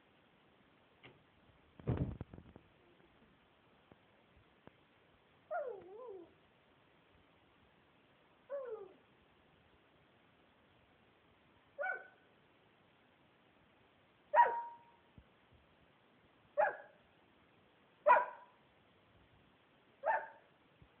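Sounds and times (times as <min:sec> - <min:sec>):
dog barking: 0:11.8 - 0:12.2, 0:14.3 - 0:15.0, 0:16.6 - 0:17.0, 0:18.0 - 0:18.6, 0:20.0 - 0:20.5.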